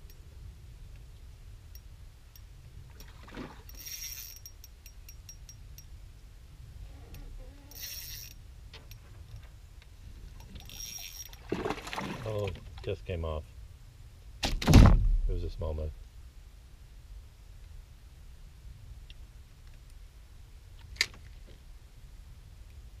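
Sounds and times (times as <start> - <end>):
low steady rumble: 0.0 - 23.0
fishing reel ticking: 3.7 - 5.9, 7.7 - 8.4, 10.5 - 11.4.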